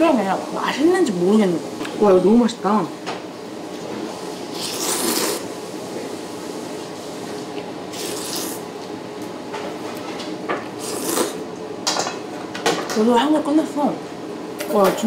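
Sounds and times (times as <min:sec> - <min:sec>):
person slurping noodles: 0:04.5 - 0:05.5, 0:07.9 - 0:08.7, 0:10.8 - 0:11.4.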